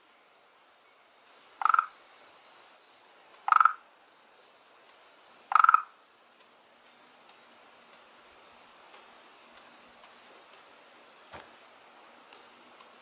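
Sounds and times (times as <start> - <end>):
frog croaking: 1.6 - 2.0, 3.5 - 3.8, 5.5 - 6.0.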